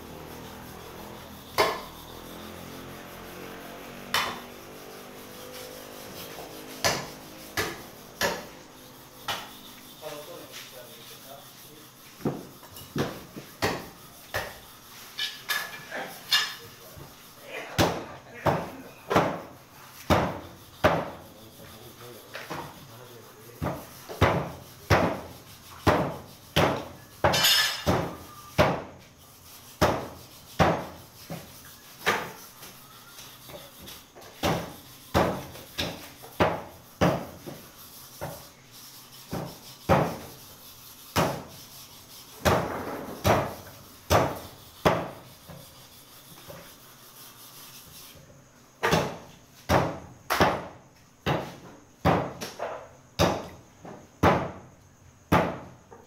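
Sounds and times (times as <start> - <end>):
cleaver chopping on wooden block: 1.6 - 2.0, 4.1 - 4.5, 6.8 - 8.6, 9.2 - 9.5, 12.2 - 14.6, 20.1 - 21.2, 23.6 - 28.9, 29.8 - 31.0, 34.4 - 37.4, 41.2 - 41.5, 48.8 - 52.6, 53.2 - 53.6, 55.3 - 55.7.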